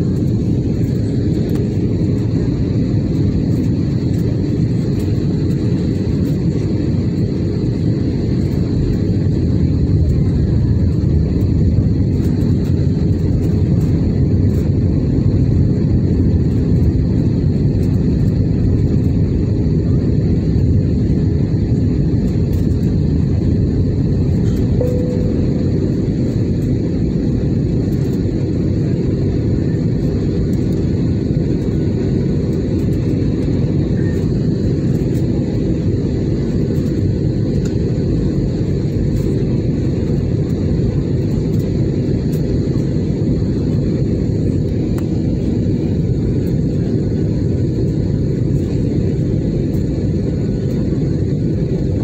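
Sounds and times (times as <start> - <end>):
jet airliner cabin drone: 0.0 - 52.0.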